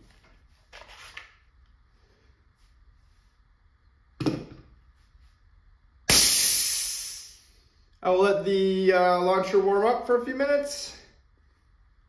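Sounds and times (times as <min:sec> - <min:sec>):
gas venting hiss: 0:06.1 - 0:07.6.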